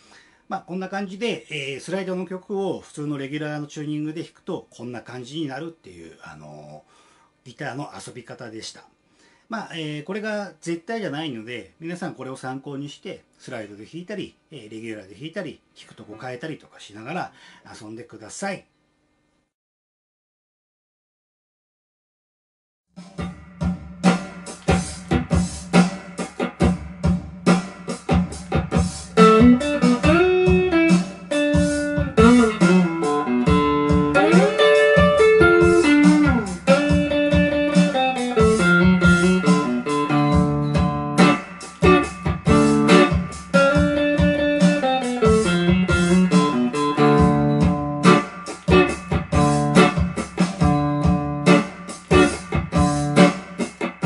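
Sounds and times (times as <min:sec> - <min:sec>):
electric guitar blues-rock riff: 0:27.5 - 0:54.0.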